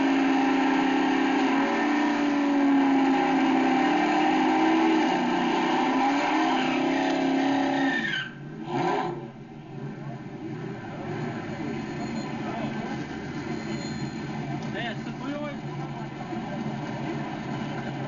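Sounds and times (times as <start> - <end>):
car engine revving high: 0.0 - 18.0
tyres spinning: 10.6 - 18.0.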